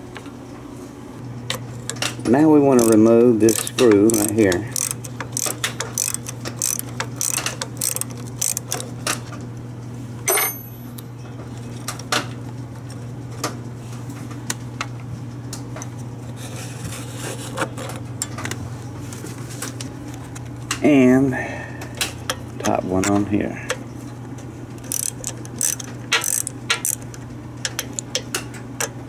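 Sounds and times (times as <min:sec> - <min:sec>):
steady low hum: 0:00.0 - 0:29.0
ratchet wrench clicking: 0:02.7 - 0:08.9, 0:24.8 - 0:28.2
sharp metallic clink: 0:10.3 - 0:10.8.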